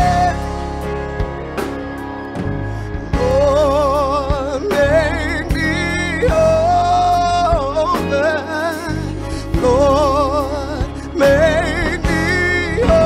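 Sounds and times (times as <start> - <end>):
woman singing gospel: 0.0 - 0.4, 3.2 - 9.0, 9.6 - 13.0
bass guitar: 0.0 - 13.0.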